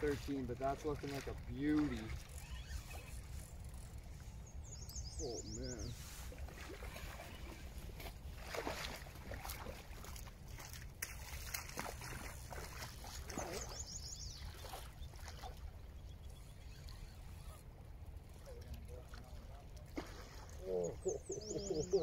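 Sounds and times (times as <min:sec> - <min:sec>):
water sloshing and splashing: 0:00.0 - 0:04.4, 0:05.2 - 0:22.0
bird chirping: 0:04.4 - 0:06.1, 0:13.3 - 0:15.4, 0:20.6 - 0:22.0.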